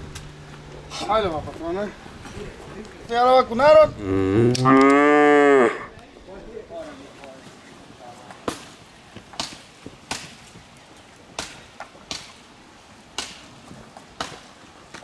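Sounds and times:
sharp cracks: 8.4s - 10.6s, 11.3s - 12.5s, 13.1s - 13.6s.

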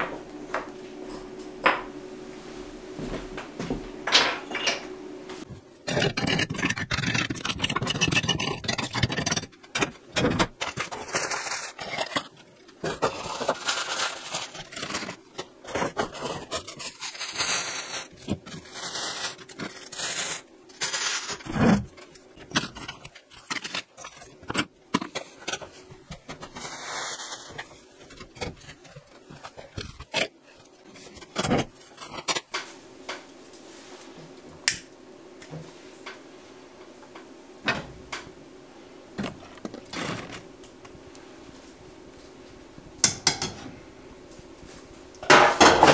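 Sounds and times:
scraping ash and grate: 5.8s - 33.2s
paper crumpling: 10.5s - 25.6s.

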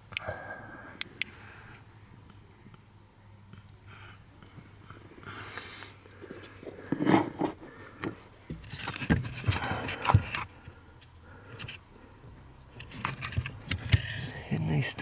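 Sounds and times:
hard plastic scraping and rustling: 6.2s - 10.7s, 12.8s - 14.4s.

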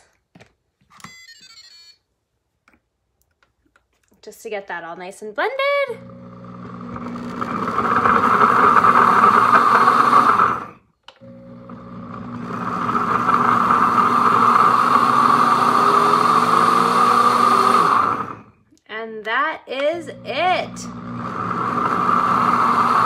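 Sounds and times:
blender motor pulsing: 6.0s - 18.6s, 20.0s - 23.0s.

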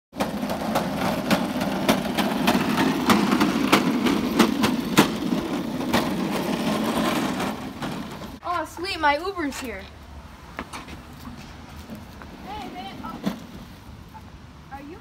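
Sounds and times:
go-kart rolling rumble: 0.1s - 8.7s, 11.2s - 14.2s
wheels clacking over slab joints: 0.1s - 14.1s.

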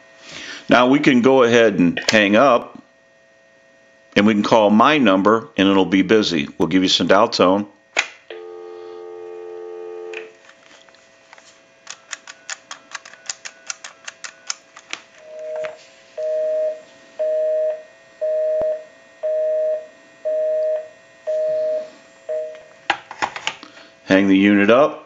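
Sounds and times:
telephone busy signal: 8.3s - 10.4s, 15.2s - 22.6s
telephone dial tone: 8.3s - 10.4s.

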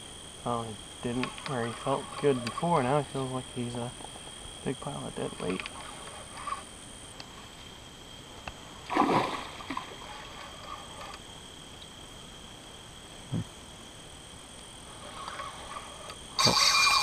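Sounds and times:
night insects calling: 0.0s - 17.0s
loud splash in water: 8.9s - 9.8s.

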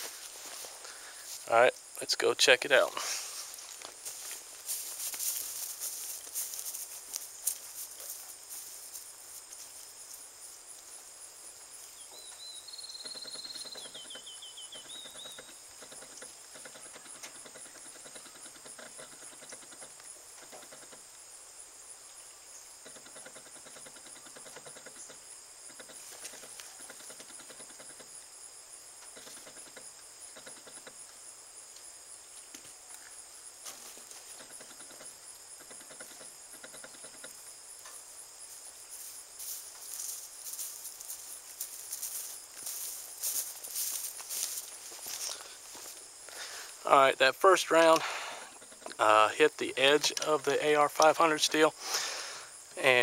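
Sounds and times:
footsteps in dry grass: 0.0s - 1.5s, 3.0s - 11.0s, 38.4s - 46.1s
crickets chirring: 0.0s - 53.0s.

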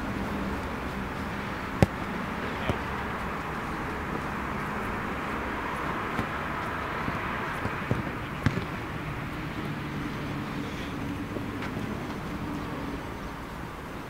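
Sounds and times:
outdoor background hiss: 0.0s - 14.0s
soccer ball being kicked: 1.6s - 9.0s.

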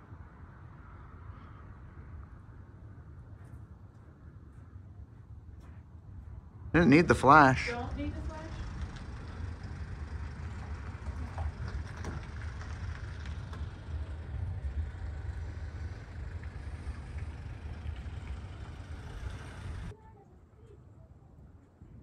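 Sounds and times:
vehicle road rumble: 0.0s - 20.0s
faint clicks and rattles: 7.9s - 19.9s.

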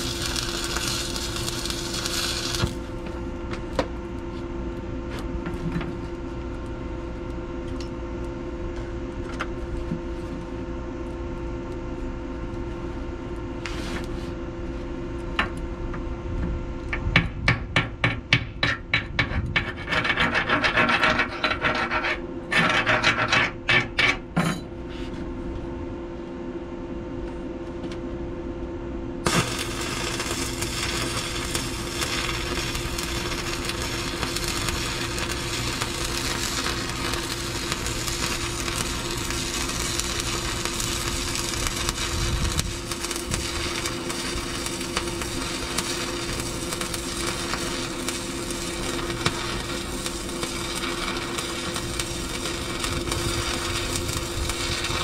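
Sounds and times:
scraping slag off weld: 0.0s - 2.9s, 18.5s - 24.2s, 29.2s - 55.0s
welding arc crackling: 0.0s - 3.0s, 29.2s - 55.0s
machine hum: 0.0s - 13.6s, 14.4s - 55.0s.

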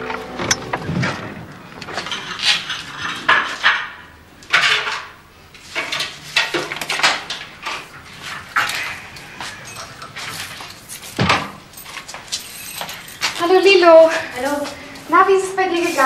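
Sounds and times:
hand brush sweeping steps: 9.3s - 16.0s
dustpan scraping on steps: 12.2s - 16.0s.

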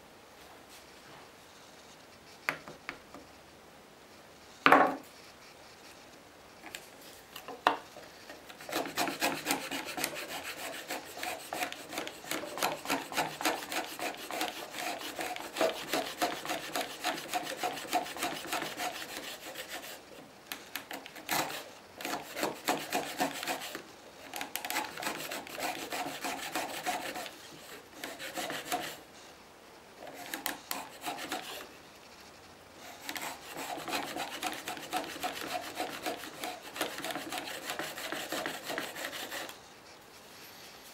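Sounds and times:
hand plane scraping wood: 8.5s - 20.1s, 20.7s - 29.0s, 30.1s - 31.7s, 32.9s - 39.6s.

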